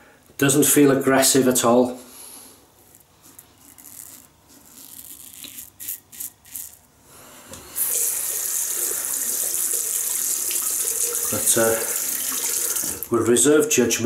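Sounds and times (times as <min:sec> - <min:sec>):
razor scraping stubble: 0:02.8 - 0:06.8
tap water running into sink: 0:07.8 - 0:13.1.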